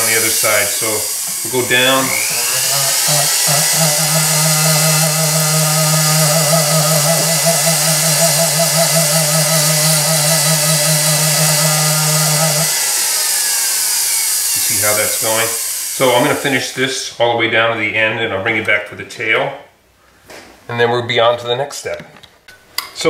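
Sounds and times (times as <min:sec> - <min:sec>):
sandpaper sanding metal: 0:00.0 - 0:16.7
flex shaft motor hum: 0:00.0 - 0:16.8.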